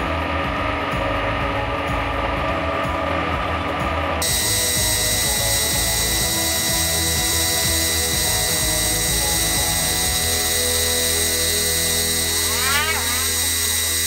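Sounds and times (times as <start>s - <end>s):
low motor hum: 0.0s - 14.0s
spray gun hissing: 4.2s - 14.0s.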